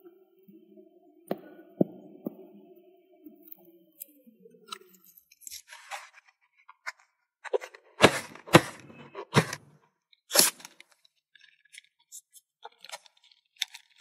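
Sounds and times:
balloon crackling snaps: 0:10.3 - 0:10.8.

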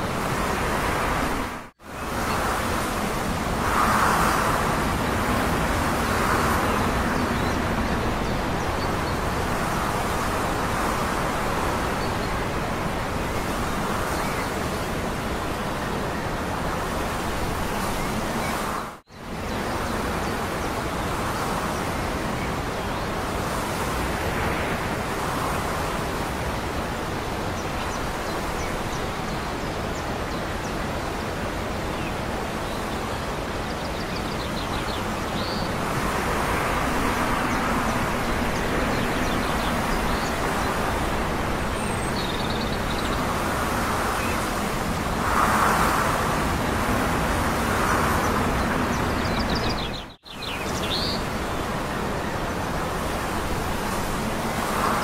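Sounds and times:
wind: 0:00.0 - 0:55.0
distant traffic: 0:33.3 - 0:55.0.

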